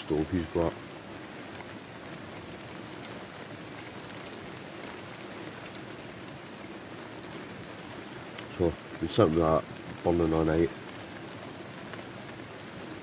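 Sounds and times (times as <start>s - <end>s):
heavy rain on tent fabric: 0.0s - 13.0s
faint ticks: 1.4s - 2.4s, 3.0s - 6.3s.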